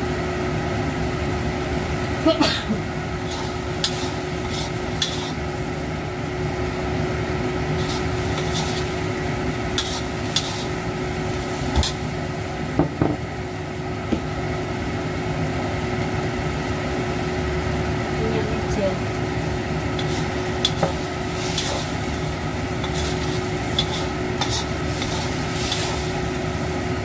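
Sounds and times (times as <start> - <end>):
food sizzling in a wok: 0.0 - 27.0
metal spatula clanking on wok: 20.0 - 21.8.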